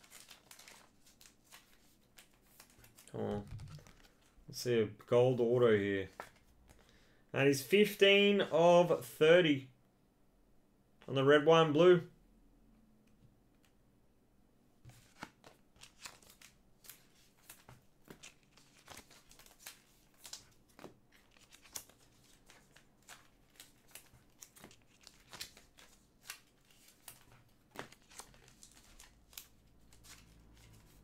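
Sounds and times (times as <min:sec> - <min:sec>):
trading cards being flipped: 0:00.0 - 0:04.3, 0:14.9 - 0:31.0.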